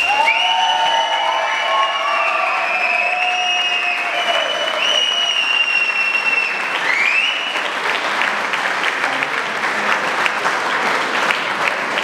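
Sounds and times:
high whistle: 0.0 - 7.6
audience applauding: 0.0 - 12.0.

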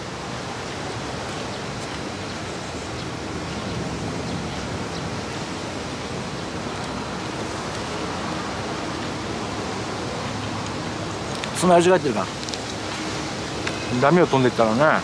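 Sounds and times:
strong wind on microphone: 0.0 - 11.5.

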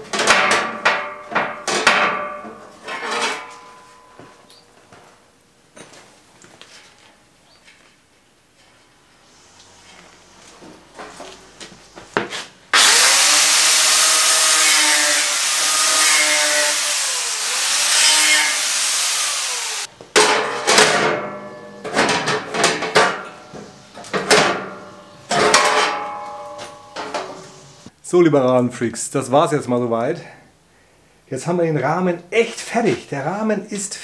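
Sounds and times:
metal knocks and clatters: 0.0 - 4.2, 20.1 - 27.4
angle grinder grinding steel: 12.8 - 19.9.

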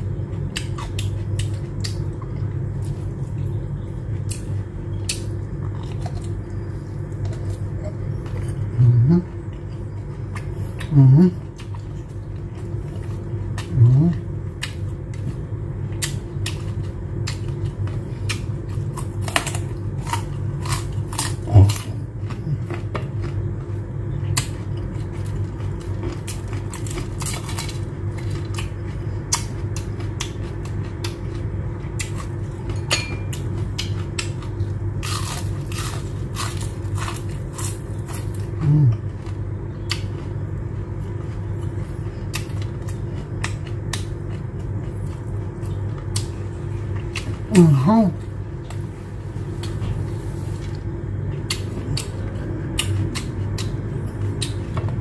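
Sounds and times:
low background hum: 0.0 - 55.0
chewing and lip smacks: 4.2 - 19.5, 24.2 - 47.5, 51.4 - 54.8
low voiced sound: 7.8 - 9.5, 10.8 - 11.5, 13.6 - 14.3, 38.5 - 39.0, 47.4 - 48.3.

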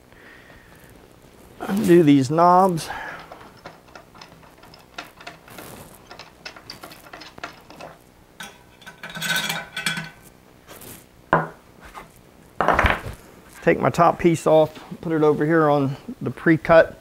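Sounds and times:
scraping and handling noise: 1.3 - 13.8
clicks of turning threads: 2.8 - 10.3.

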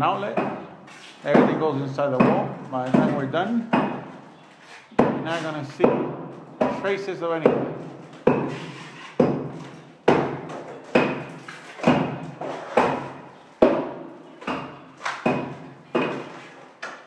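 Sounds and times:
trowel slapping mortar: 7.5 - 16.9.

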